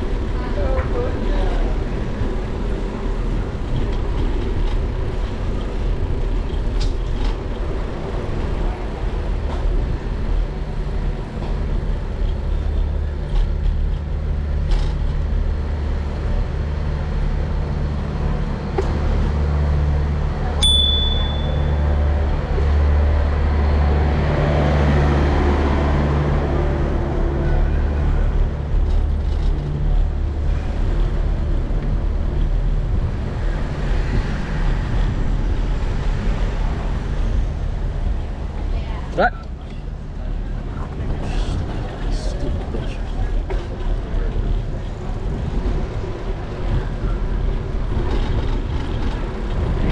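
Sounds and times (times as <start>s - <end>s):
bicycle tyre and street noise: 0.0s - 49.9s
truck engine noise: 0.0s - 49.9s
bicycle bell ding: 20.6s - 21.8s
wind rumble on microphone: 21.8s - 49.9s.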